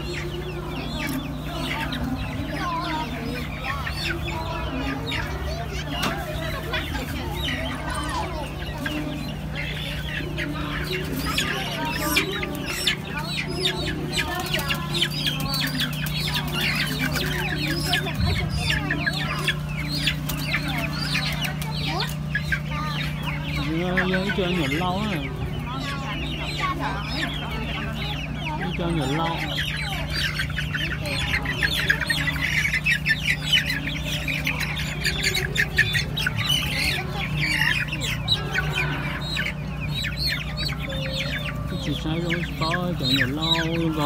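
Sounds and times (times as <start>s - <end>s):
chickens clucking: 0.0s - 44.0s
steady low hum: 0.0s - 44.0s.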